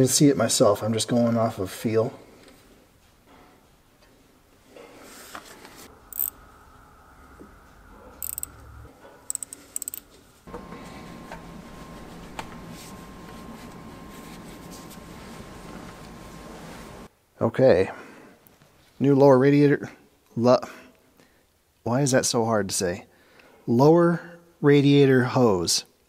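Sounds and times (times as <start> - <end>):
faint hum with high tone: 5.8 - 17.1
metallic clinks and handling: 9.3 - 10.2.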